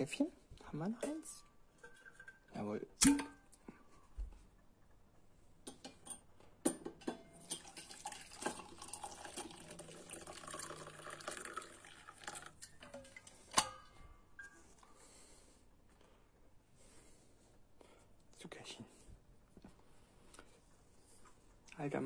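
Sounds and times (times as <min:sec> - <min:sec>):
coffee pouring into a mug: 0:07.4 - 0:13.4.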